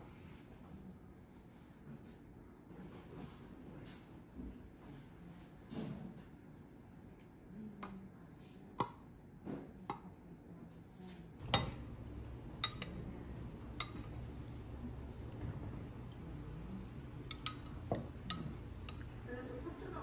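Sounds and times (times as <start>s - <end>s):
metal spoon clinking on glass: 11.4s - 14.7s, 17.2s - 19.1s.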